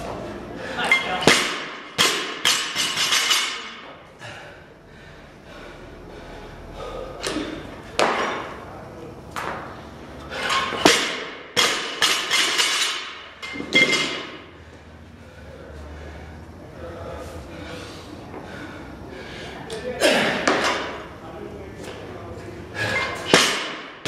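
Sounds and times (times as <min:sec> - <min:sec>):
barbell plates clanking: 0:10.3 - 0:14.4
plates bouncing and rattling: 0:10.4 - 0:14.4.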